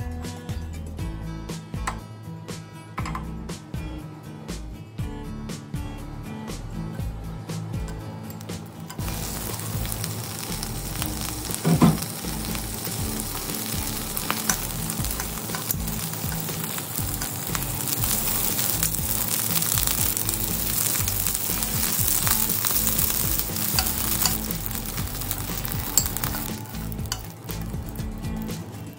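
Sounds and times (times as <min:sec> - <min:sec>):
prawns sizzling in hot oil: 0:08.4 - 0:28.9
loud clunk: 0:11.6 - 0:12.1
metal tongs clicking: 0:14.3 - 0:17.9, 0:23.5 - 0:27.7.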